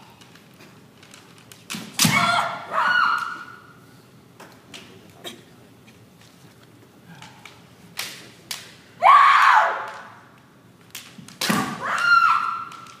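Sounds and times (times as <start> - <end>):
bamboo swords clacking: 7.2 - 8.8, 10.8 - 13.0
people shouting: 11.5 - 12.9.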